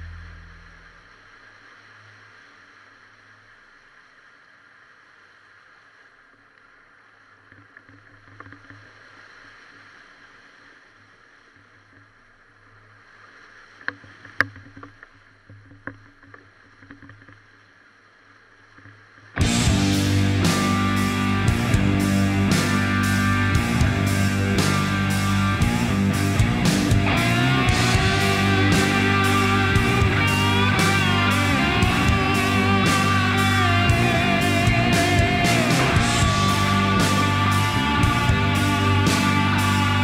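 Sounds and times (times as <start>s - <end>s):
music: 0.0s - 1.0s, 19.4s - 40.0s
faint engine running: 19.4s - 40.0s.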